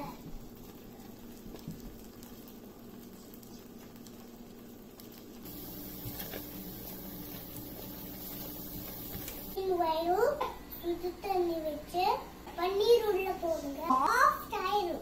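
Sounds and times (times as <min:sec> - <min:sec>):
thick paste bubbling in pan: 0:00.0 - 0:09.6
steady low hum: 0:05.4 - 0:09.8.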